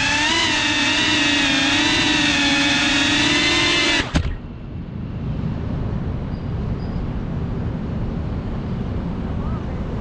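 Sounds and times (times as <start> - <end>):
drone motors whining: 0.0 - 4.7.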